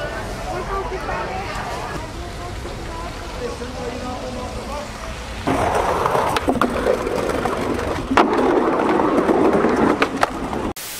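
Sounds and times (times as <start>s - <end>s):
skateboard wheels rolling on wood: 1.0s - 10.8s
skateboard clacks: 5.4s - 10.7s.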